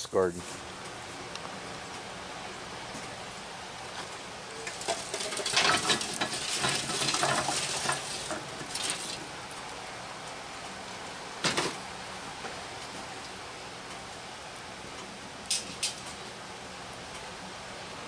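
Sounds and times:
charcoal clattering onto grate: 0:04.5 - 0:09.4, 0:11.4 - 0:11.8, 0:15.5 - 0:16.2.

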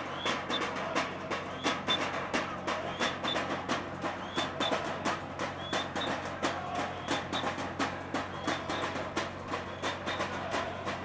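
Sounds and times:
short high whistle: 0:00.0 - 0:00.7, 0:01.5 - 0:02.1, 0:02.9 - 0:03.5, 0:04.2 - 0:04.8, 0:05.6 - 0:06.2, 0:06.9 - 0:07.6, 0:08.3 - 0:09.0, 0:09.7 - 0:10.2
sticks beating a metal tin: 0:00.0 - 0:11.0.

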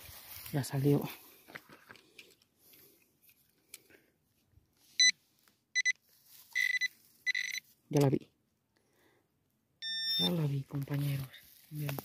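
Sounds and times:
metal detector beeping: 0:05.0 - 0:05.2, 0:05.8 - 0:07.7, 0:09.8 - 0:10.6.

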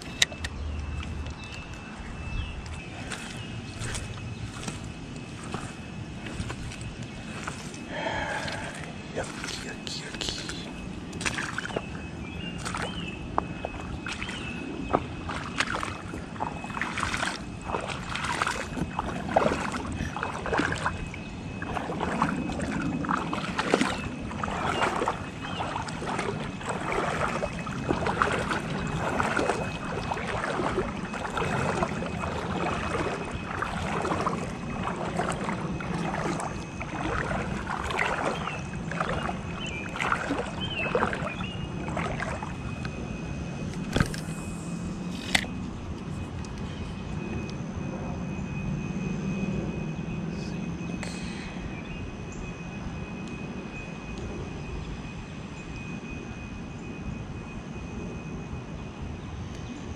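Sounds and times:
water sloshing and splashing: 0:00.0 - 0:47.8.

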